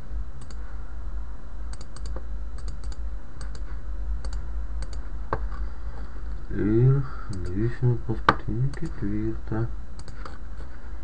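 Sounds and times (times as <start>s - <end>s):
steady low hum: 0.0s - 11.0s
computer mouse clicking: 0.4s - 0.6s, 1.7s - 5.1s, 8.7s - 9.0s, 10.0s - 10.4s.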